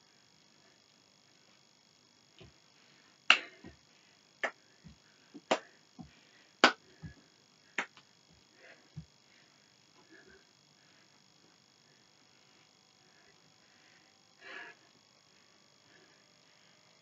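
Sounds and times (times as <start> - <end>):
sharp hand claps: 3.3 - 3.6, 4.4 - 4.6, 5.4 - 5.7, 6.6 - 6.8, 7.8 - 8.0.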